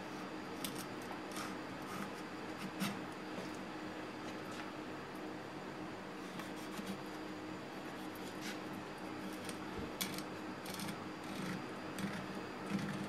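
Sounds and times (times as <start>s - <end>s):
knife scraping fish: 7.9s - 13.0s.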